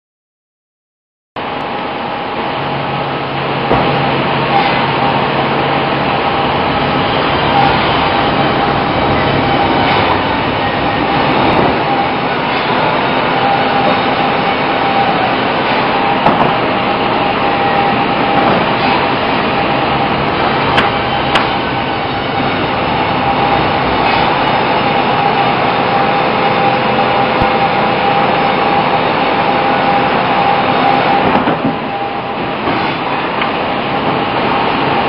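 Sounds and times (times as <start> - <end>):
sharp knocks: 3.7 - 4.8, 16.2 - 16.7, 20.7 - 21.6
band saw cutting log: 6.3 - 32.0.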